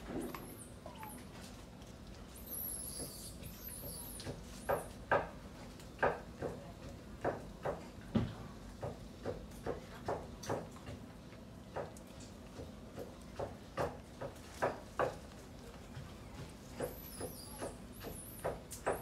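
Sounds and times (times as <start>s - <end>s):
monkey clicking and tapping food: 8.8s - 15.4s.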